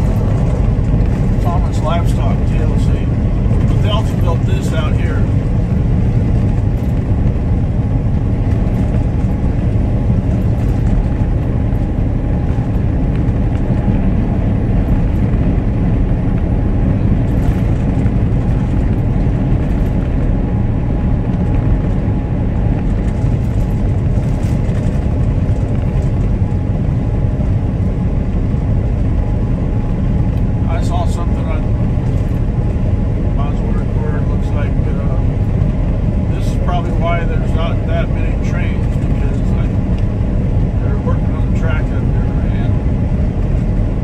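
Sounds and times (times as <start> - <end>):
tire and road noise: 0.0 - 44.0
truck engine drone: 0.0 - 44.0.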